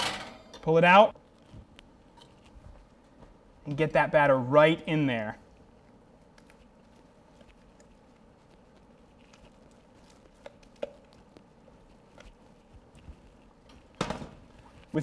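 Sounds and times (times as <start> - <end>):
wet scraping of batter: 5.6 - 15.0.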